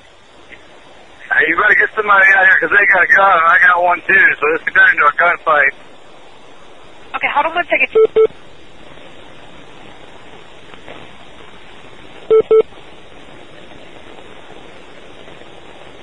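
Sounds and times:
telephone line hiss: 0.0s - 16.0s
short electronic beeps: 8.0s - 8.3s, 12.3s - 12.7s.

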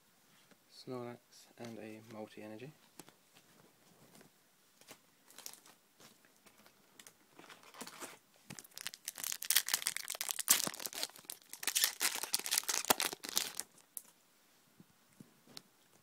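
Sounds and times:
booster pack wrapper tearing: 7.5s - 13.8s.

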